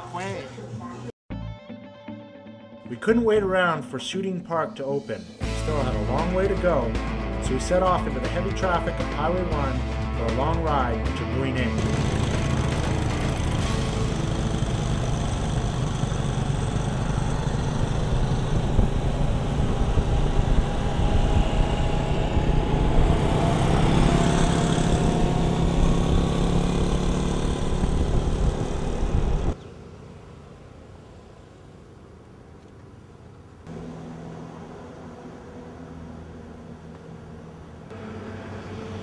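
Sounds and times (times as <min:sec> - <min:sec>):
motorbike engines in traffic: 0:11.7 - 0:39.0.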